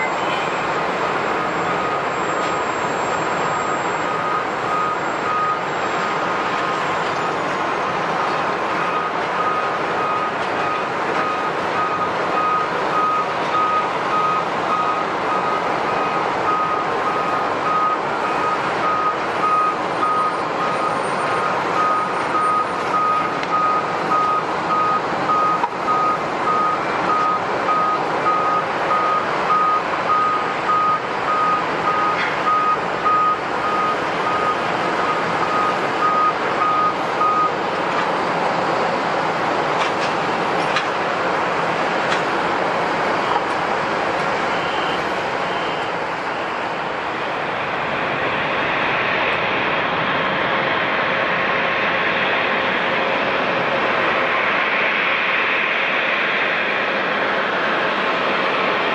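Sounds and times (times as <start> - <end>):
loud rushing background noise: 0.0 - 58.9
reversing beeper: 1.4 - 7.5, 8.6 - 37.6, 44.4 - 46.6.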